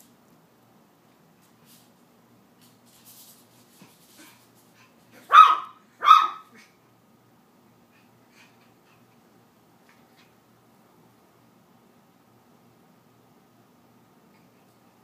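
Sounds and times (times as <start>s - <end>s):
puppy barking: 5.2s - 6.6s.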